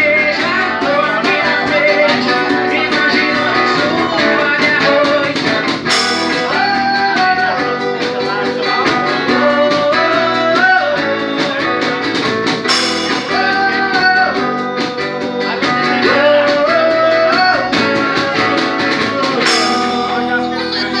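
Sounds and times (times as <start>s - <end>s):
acoustic guitar: 0.0s - 21.0s
drum kit: 0.0s - 21.0s
keyboard: 0.0s - 21.0s
man singing into a microphone: 0.0s - 21.0s
cymbal crash: 12.7s - 13.7s.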